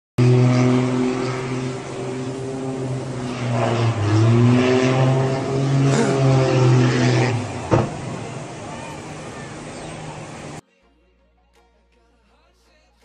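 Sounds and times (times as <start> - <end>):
aircraft engine droning: 0.2 - 10.6.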